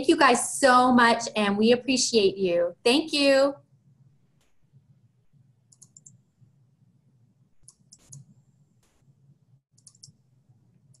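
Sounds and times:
computer mouse clicks: 0:05.7 - 0:06.2, 0:07.6 - 0:09.0, 0:09.7 - 0:10.2.

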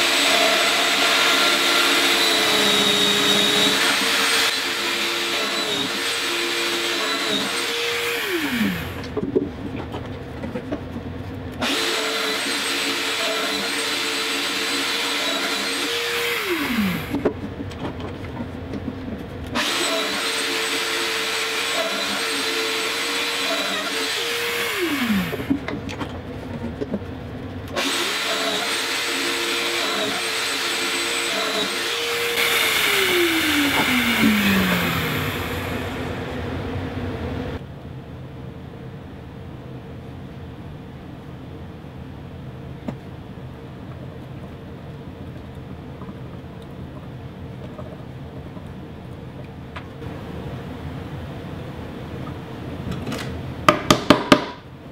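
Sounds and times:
power joiner cutting and winding down: 0:00.0 - 0:09.1, 0:11.6 - 0:17.3, 0:19.6 - 0:25.6, 0:27.8 - 0:36.6.

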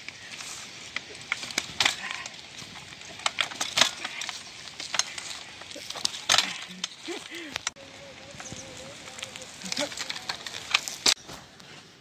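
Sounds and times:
bicycle clicking and rattling: 0:00.0 - 0:12.0
steady hiss: 0:00.0 - 0:12.0.

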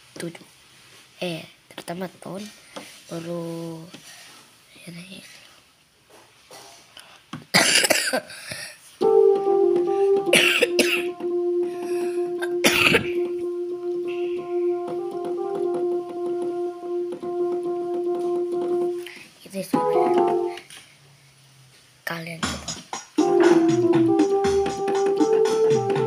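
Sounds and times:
electronic keyboard held notes: 0:09.0 - 0:19.1, 0:19.7 - 0:20.6, 0:23.2 - 0:26.0.

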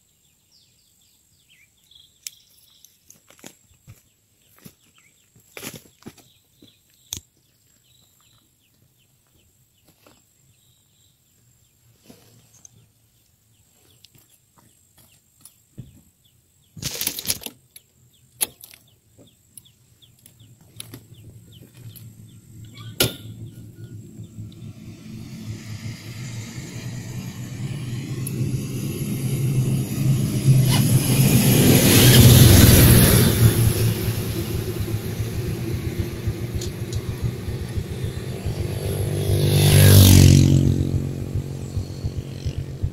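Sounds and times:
dump truck passing: 0:21.0 - 0:42.9.

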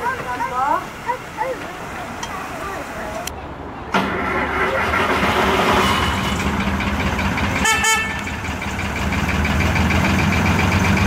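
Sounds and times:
locomotive diesel engine running: 0:00.0 - 0:11.0
locomotive horn toot: 0:07.6 - 0:08.4.

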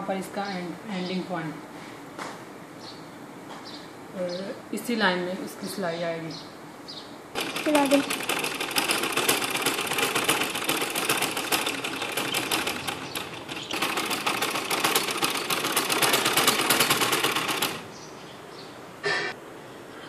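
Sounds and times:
sewing machine stitching: 0:07.4 - 0:17.9.

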